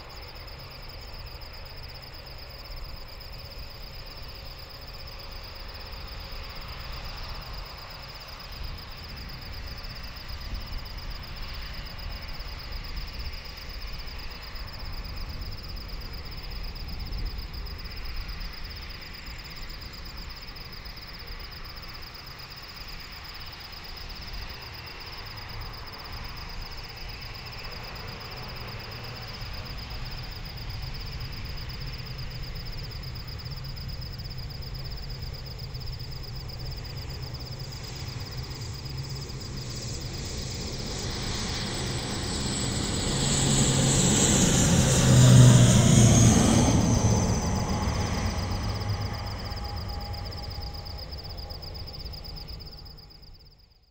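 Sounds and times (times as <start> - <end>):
jet engines rumbling at taxi: 0.0 - 53.8
crickets trilling: 0.0 - 53.9.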